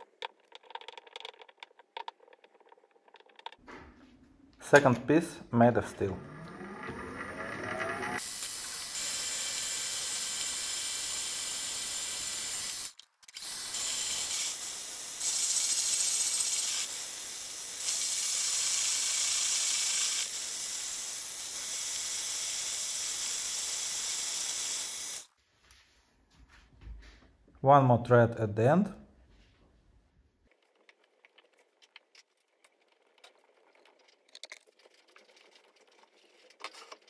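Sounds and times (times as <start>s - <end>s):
metal lathe cutting hiss: 8.2s - 25.3s.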